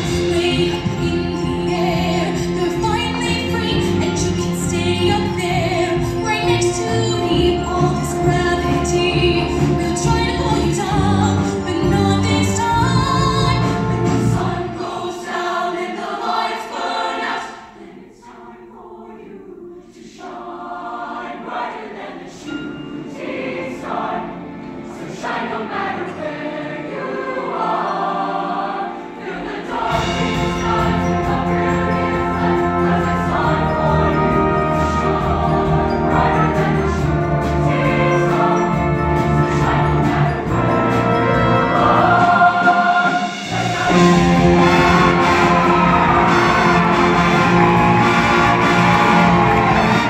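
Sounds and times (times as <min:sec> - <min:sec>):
choir singing pop song: 0:00.0 - 0:50.0
instrumental accompaniment: 0:21.5 - 0:50.0.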